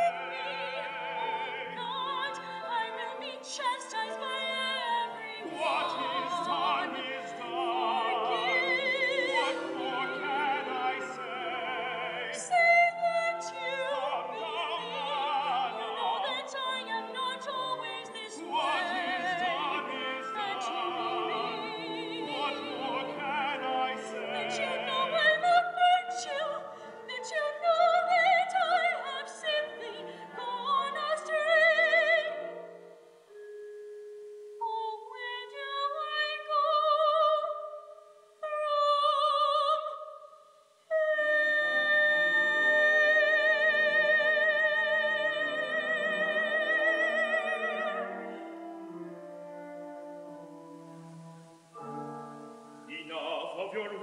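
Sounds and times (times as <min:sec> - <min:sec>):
woman singing opera: 0:00.0 - 0:32.9, 0:34.6 - 0:40.3, 0:40.9 - 0:49.4
instrumental accompaniment: 0:45.4 - 0:54.0.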